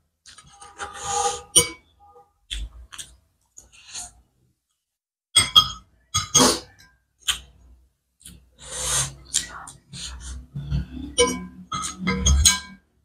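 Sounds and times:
chewing and slurping: 0:08.2 - 0:11.2
cutlery clinking on ceramic plate: 0:11.2 - 0:12.8.

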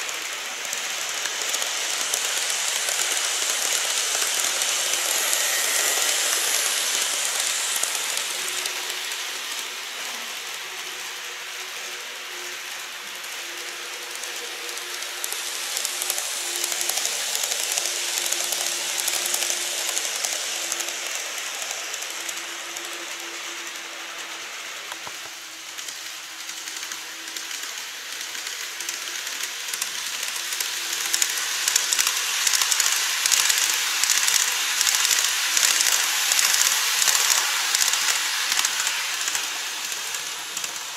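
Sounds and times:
model train wheels rattling: 0:00.0 - 0:40.9
quick clicking of passing train: 0:00.0 - 0:40.9.

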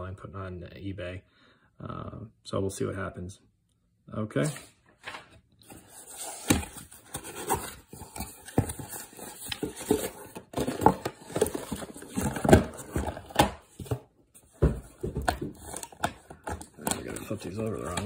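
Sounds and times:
cardboard box rustling and scraping: 0:05.6 - 0:18.0.

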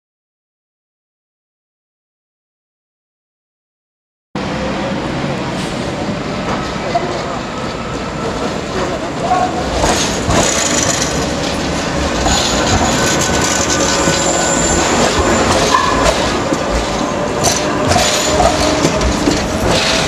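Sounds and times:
tram wheels rumbling and rattling: 0:04.4 - 0:20.0
high-pitched wheel squeal: 0:12.2 - 0:16.3.

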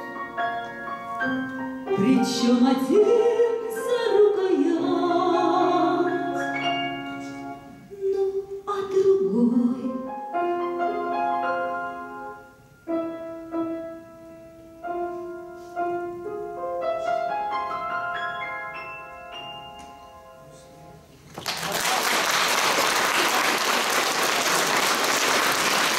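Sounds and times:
grand piano playing: 0:00.0 - 0:21.3
woman singing: 0:01.9 - 0:06.6, 0:07.9 - 0:10.2.

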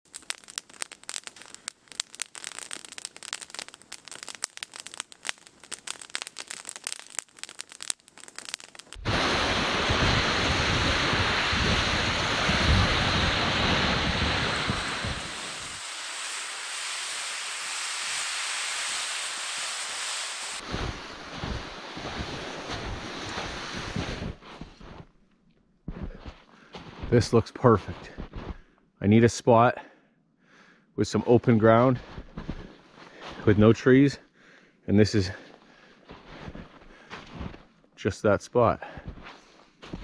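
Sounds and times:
campfire crackling and popping: 0:00.0 - 0:24.4
steady rushing hiss: 0:00.0 - 0:24.4
wind rumbling on microphone: 0:09.0 - 0:15.9.

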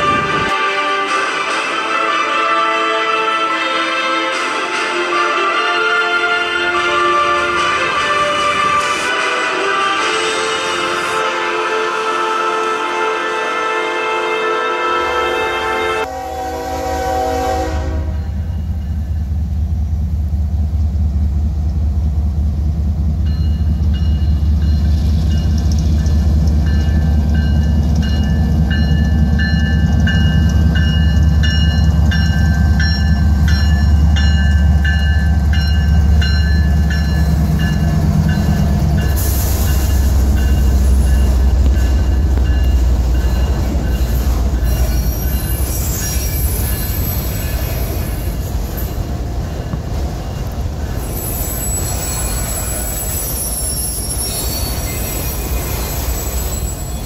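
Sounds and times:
rail cars rattling past: 0:00.0 - 0:57.0
diesel locomotive rumble: 0:16.0 - 0:57.0.

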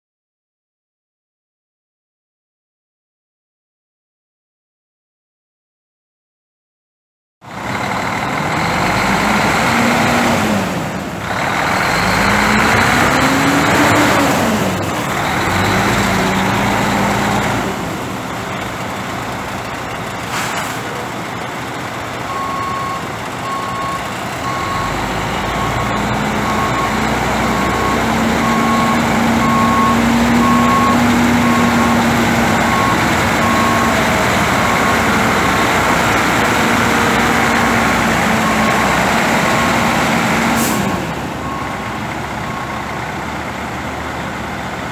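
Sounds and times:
diesel truck engine revving: 0:07.5 - 0:44.9
backup alarm beeping: 0:22.3 - 0:25.0, 0:25.6 - 0:32.0, 0:32.6 - 0:35.6.

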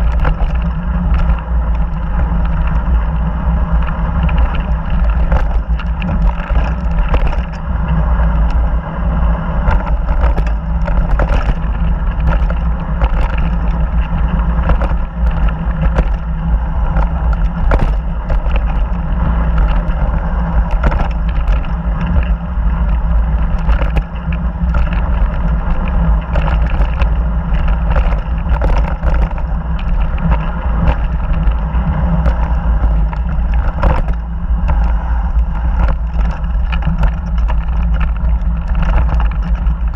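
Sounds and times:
bike clicking and rattling: 0:00.0 - 0:39.9
tyres rumbling on dirt: 0:00.0 - 0:39.9
wind buffeting microphone: 0:00.0 - 0:39.9.

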